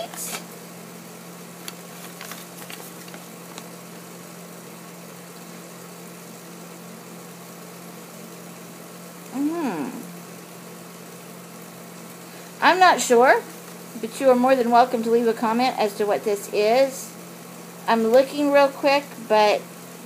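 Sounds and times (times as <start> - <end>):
paper crackling: 1.5 - 4.1
woman saying hmm: 9.3 - 10.1.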